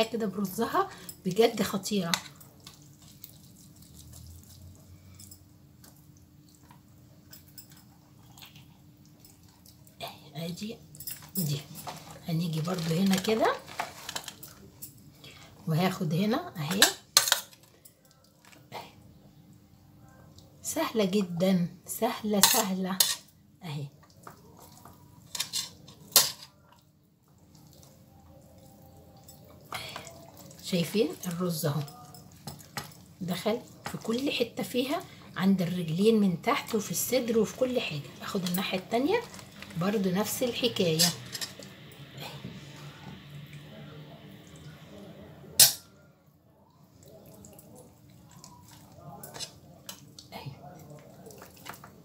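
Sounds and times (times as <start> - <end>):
wet squishing of rice stuffing: 2.4 - 5.1, 23.7 - 52.0
faint food handling: 11.1 - 15.2, 36.6 - 41.8
metal spoon clinking on plate: 45.6 - 46.0.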